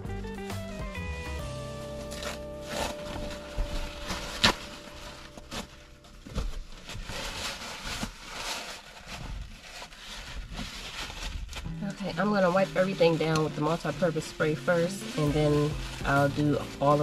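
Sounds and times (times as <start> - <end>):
background music: 0.0 - 6.6, 11.7 - 17.0
rustling: 1.4 - 17.0.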